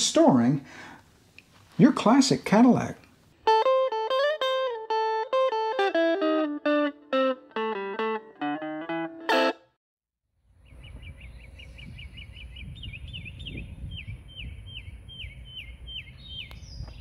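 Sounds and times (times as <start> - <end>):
guitar music: 3.4 - 9.8
bird chirping: 10.6 - 17.0
wind rumbling on microphone: 10.6 - 17.0.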